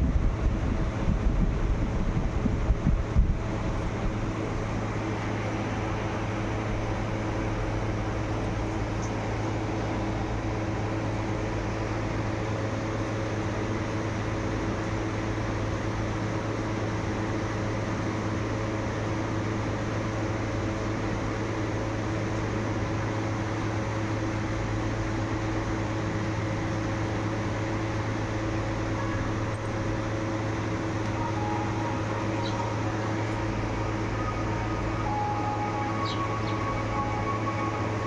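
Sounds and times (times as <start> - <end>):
mechanical hum: 0.0 - 38.0
faint high chirps: 31.1 - 32.9, 34.1 - 38.0.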